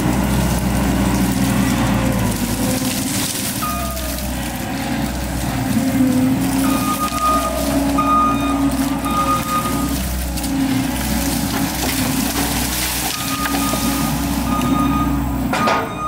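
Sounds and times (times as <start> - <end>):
diesel engine under load: 0.0 - 16.0
backup alarm beeping: 6.6 - 10.0, 13.1 - 16.0.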